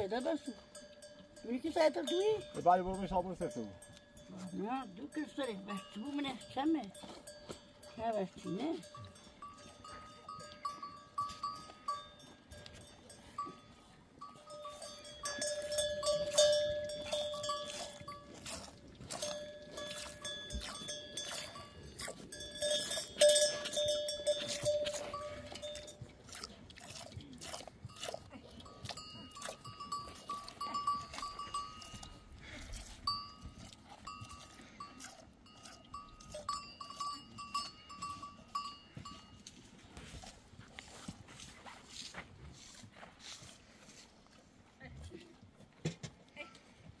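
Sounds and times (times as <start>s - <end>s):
metallic ringing and clinking: 0.0s - 18.4s, 19.1s - 26.1s.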